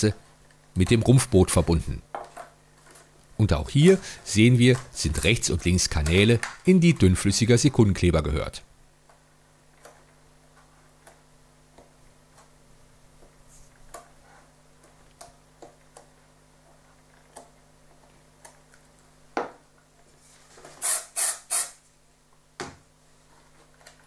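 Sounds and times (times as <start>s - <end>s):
short hissing spray bursts: 20.8s - 21.8s.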